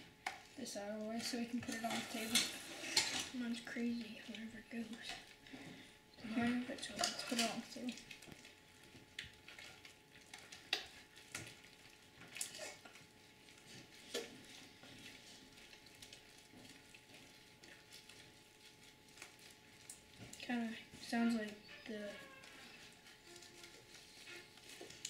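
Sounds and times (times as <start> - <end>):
slime crackling and squishing: 6.3 - 25.0.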